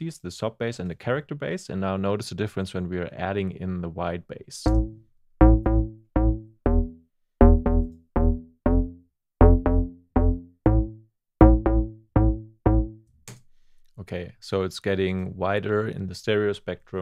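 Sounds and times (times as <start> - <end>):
staccato synth bass line: 4.7 - 13.1.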